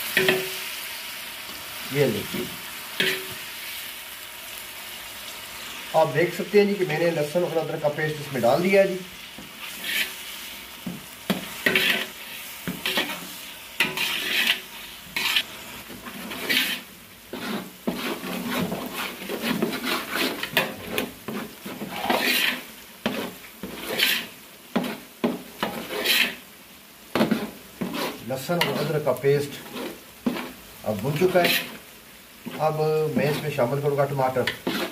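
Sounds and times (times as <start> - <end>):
onions sizzling in a pot: 0.0 - 34.9
metal spoon scraping a pot: 3.0 - 3.4, 9.6 - 10.2, 11.3 - 26.4, 27.2 - 30.6, 31.2 - 31.8, 34.4 - 34.9.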